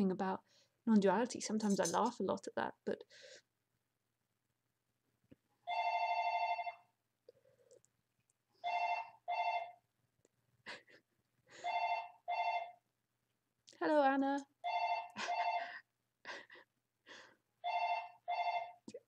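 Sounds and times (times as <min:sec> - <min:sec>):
phone ringing: 0:05.7 - 0:06.9, 0:08.6 - 0:09.8, 0:11.6 - 0:12.8, 0:14.6 - 0:15.8, 0:17.6 - 0:18.8.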